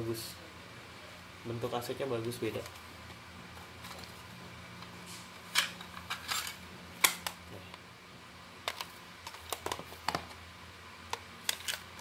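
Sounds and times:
plastic cassettes clicking: 8.6 - 10.4, 11.1 - 12.0.

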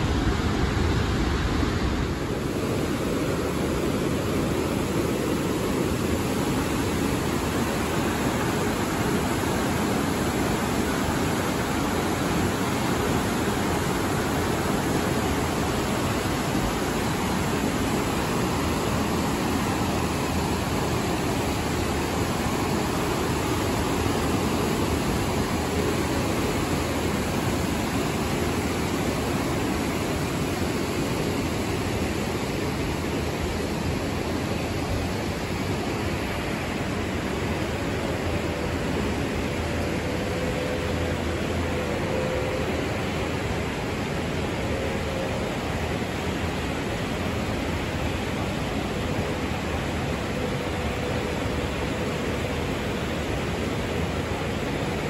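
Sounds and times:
river rushing over rapids: 0.0 - 55.0.

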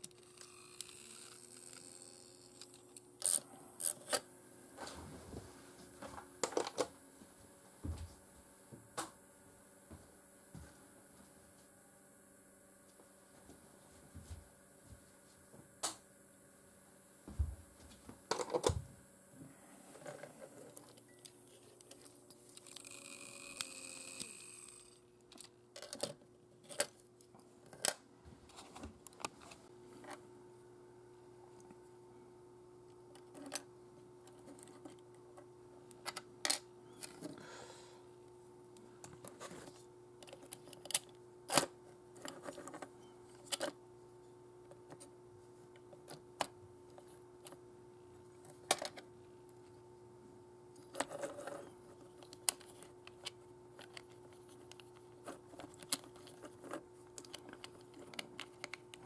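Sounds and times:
faint steady hum: 0.0 - 59.0
small plastic parts clicking: 21.8 - 27.0, 50.8 - 59.0.

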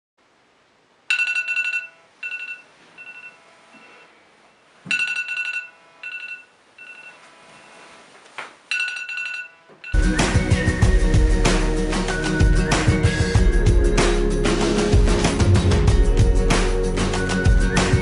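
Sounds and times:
smartphone alarm ringing: 1.1 - 4.2, 4.9 - 7.9, 8.7 - 10.0.

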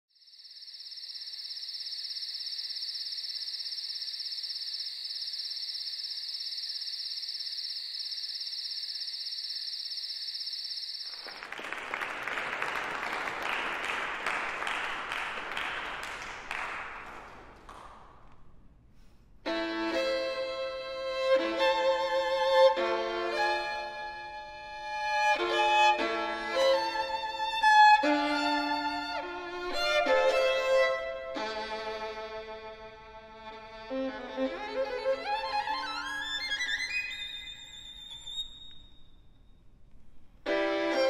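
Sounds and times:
insect chorus: 0.1 - 11.2
audience applause: 11.1 - 18.2
violin and piano playing: 19.5 - 38.2, 40.5 - 41.0.

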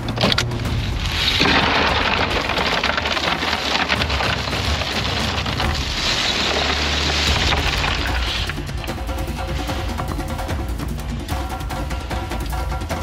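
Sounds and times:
ice cubes clattering against bottles: 0.0 - 10.4.

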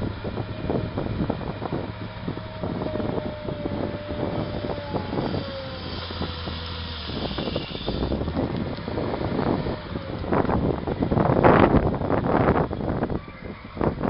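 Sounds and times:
thin whine: 0.0 - 10.6
diesel engine under load: 0.0 - 14.0.

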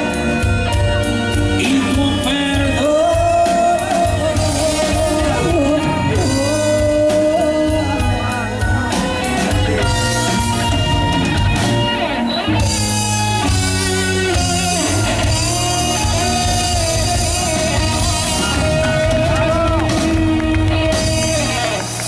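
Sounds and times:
guitar melody: 0.0 - 22.0
live pop-rock band playing: 0.0 - 22.0.

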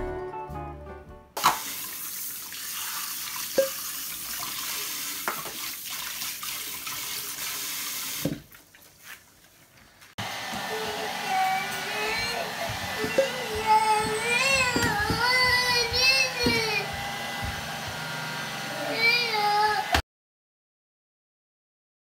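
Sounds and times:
tap running into sink: 5.2 - 5.7, 12.7 - 17.6.

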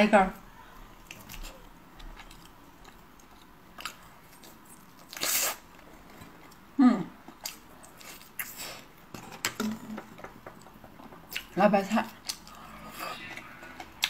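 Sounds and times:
person chewing: 1.0 - 9.0, 12.2 - 14.0.

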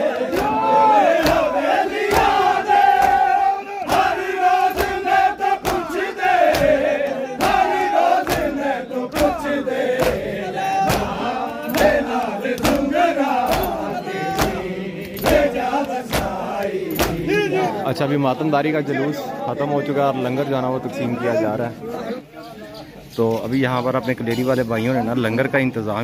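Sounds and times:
men chanting in unison: 0.0 - 22.3
hands slapping chests: 0.1 - 0.6, 1.2 - 3.3, 3.9 - 17.3.

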